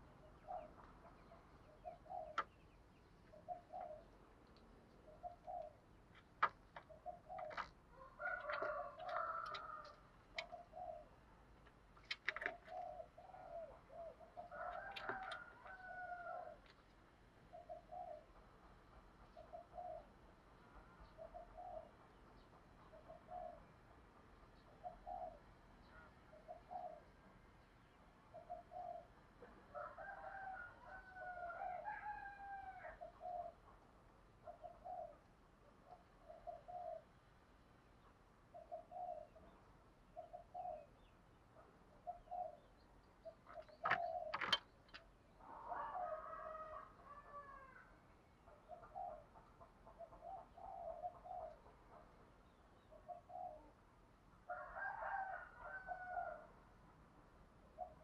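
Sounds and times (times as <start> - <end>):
dove cooing: 0.0 - 2.6, 3.3 - 4.2, 5.0 - 11.2, 12.0 - 16.6, 17.5 - 18.4, 19.3 - 20.1, 21.1 - 21.9, 22.9 - 23.7, 24.8 - 27.1, 28.3 - 33.6, 34.4 - 37.1, 38.5 - 39.6, 40.2 - 41.1, 42.0 - 47.9, 48.5 - 52.2, 52.8 - 53.8, 57.7 - 58.0.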